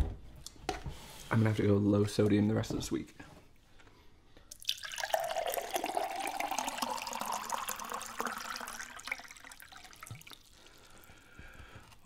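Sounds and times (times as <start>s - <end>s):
water pouring into cup of ice: 4.5s - 10.8s.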